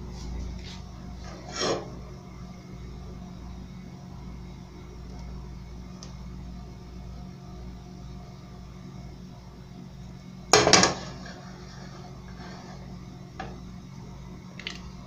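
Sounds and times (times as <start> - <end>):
kitchen low hum: 0.0 - 15.0.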